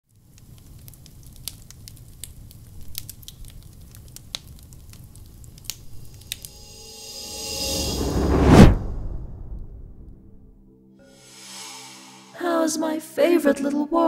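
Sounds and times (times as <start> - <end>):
burning wood crackling and popping: 0.1 - 6.5.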